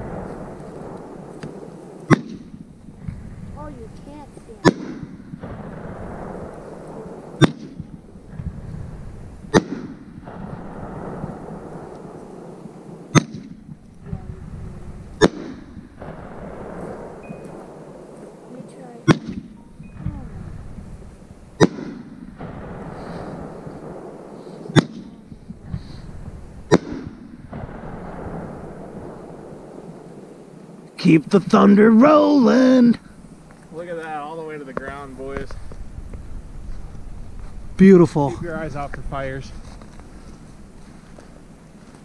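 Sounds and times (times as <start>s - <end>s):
fireworks booming: 0.0s - 42.0s
steady low noise: 0.0s - 42.0s.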